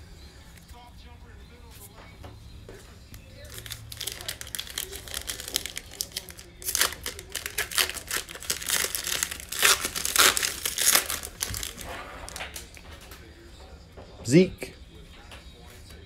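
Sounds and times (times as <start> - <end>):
plastic wrapper tearing and crinkling: 3.4 - 12.8.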